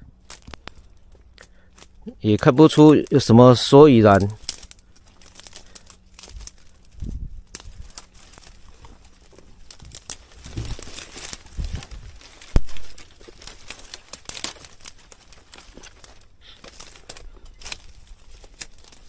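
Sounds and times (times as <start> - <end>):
footsteps through dry grass: 0.0 - 19.0
twigs and leaves crackling: 0.0 - 19.0.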